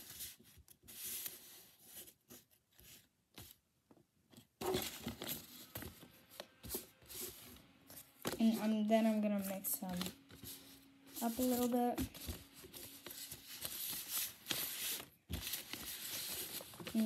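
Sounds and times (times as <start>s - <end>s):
paper rustling and crinkling: 4.6s - 17.0s.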